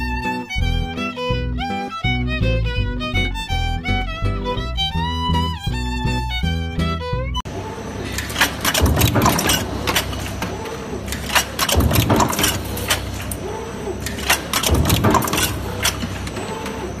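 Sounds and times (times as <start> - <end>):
machine hum: 0.0 - 17.0
metallic clanking and clattering: 8.0 - 17.0.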